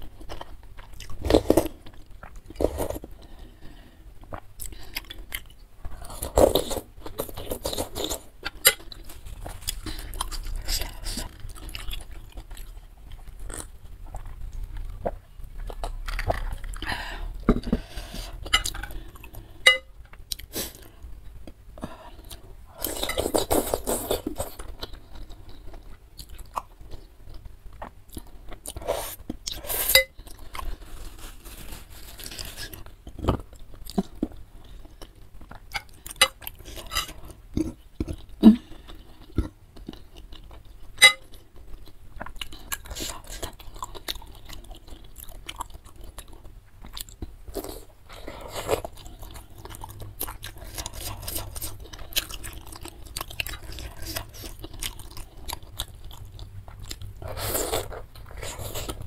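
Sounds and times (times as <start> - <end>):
wet chewing with crunchy clicks: 32.8 - 59.0.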